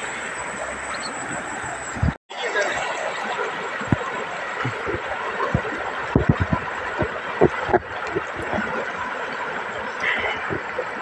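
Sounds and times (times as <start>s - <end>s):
low thumps: 3.9s - 8.8s.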